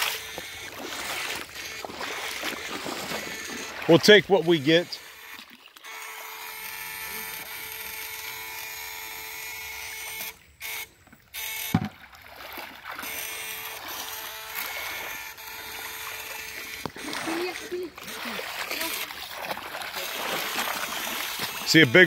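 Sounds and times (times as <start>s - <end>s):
electrofishing rig whining: 0.0s - 12.0s, 13.0s - 22.0s
short thump: 11.7s - 12.0s.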